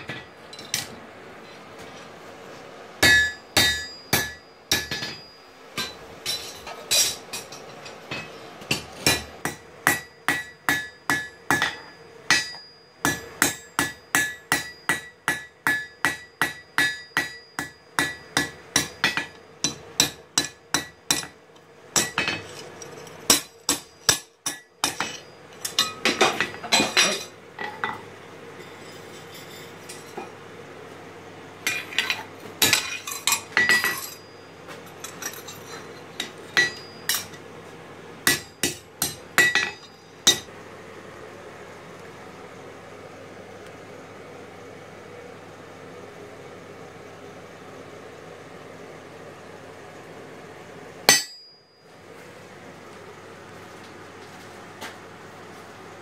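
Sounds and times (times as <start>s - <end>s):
hammer striking steel on anvil: 3.0s - 21.4s, 22.0s - 28.0s, 31.7s - 34.3s, 36.2s - 37.4s, 38.2s - 40.5s, 51.1s - 51.8s.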